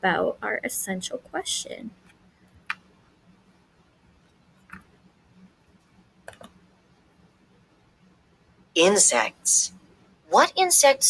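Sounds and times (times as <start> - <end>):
faint low hum: 0.0 - 11.0
computer mouse clicks: 4.6 - 4.9, 6.2 - 6.6.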